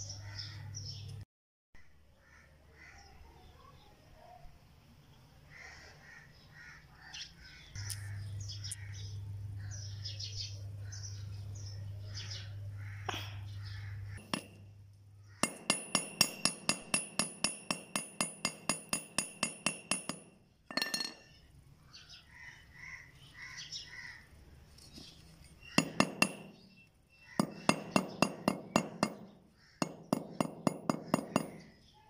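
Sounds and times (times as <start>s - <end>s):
birds chirping: 0.0s - 1.2s, 5.0s - 32.0s
low steady hum: 7.7s - 15.4s
hammer striking metal: 14.2s - 14.6s, 15.4s - 21.3s, 25.7s - 26.8s, 27.4s - 31.8s.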